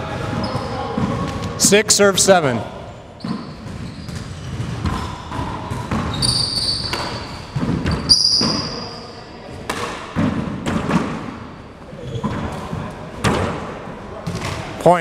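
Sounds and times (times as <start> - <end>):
sneakers squeaking on floor: 0.0 - 1.5, 3.1 - 9.2, 11.8 - 12.9
ball smacking walls and floor: 3.2 - 8.8, 9.6 - 11.4.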